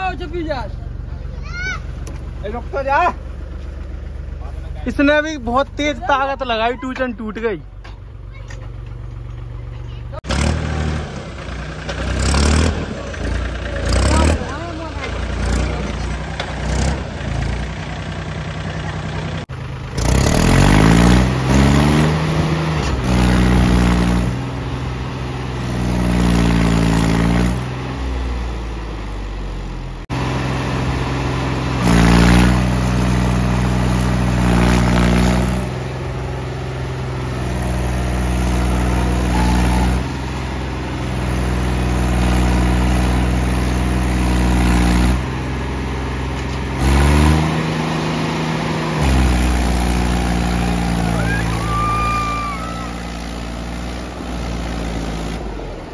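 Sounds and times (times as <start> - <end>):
tractor diesel engine revving: 8.8 - 55.9.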